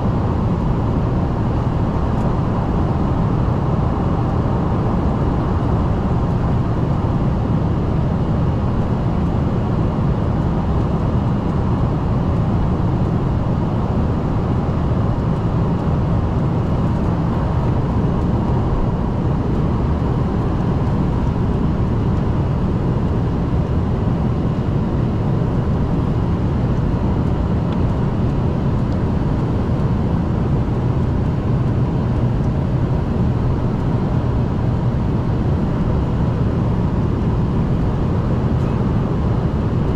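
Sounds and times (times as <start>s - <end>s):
jet cabin low rumble: 0.0s - 39.9s.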